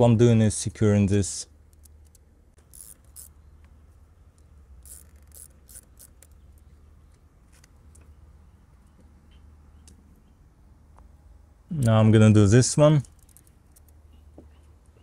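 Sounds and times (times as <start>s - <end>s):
hose and clamp rubbing: 4.8s - 6.4s.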